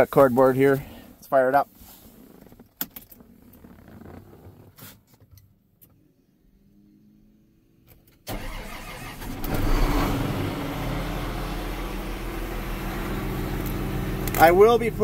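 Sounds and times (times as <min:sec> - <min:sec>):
diesel engine starting and idling: 0:08.2 - 0:15.0.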